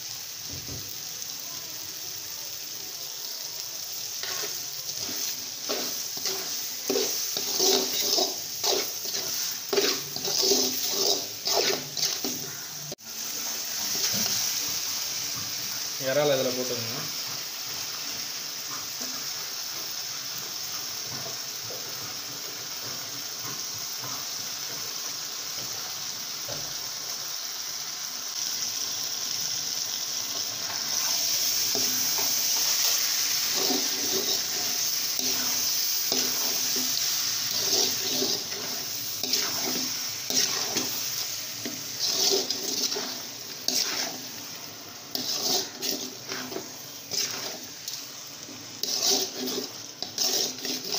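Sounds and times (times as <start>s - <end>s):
prawns sizzling in a pot: 0.0s - 50.9s
metal ladle scraping a pot: 4.2s - 12.6s, 41.6s - 44.3s, 45.1s - 47.7s, 48.8s - 50.9s.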